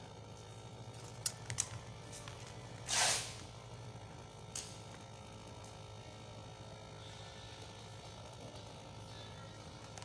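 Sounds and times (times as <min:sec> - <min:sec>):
steady low hum: 0:00.0 - 0:10.0
short hiss: 0:02.8 - 0:03.4.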